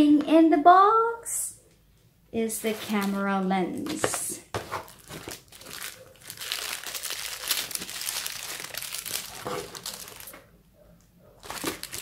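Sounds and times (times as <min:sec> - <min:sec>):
bubble wrap crinkling: 0:02.6 - 0:10.5, 0:11.4 - 0:12.0.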